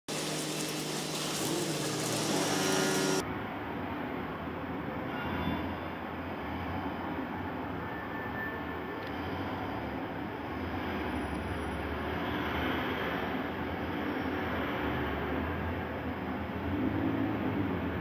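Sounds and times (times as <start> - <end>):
bright hissy noise: 0.1 - 3.2.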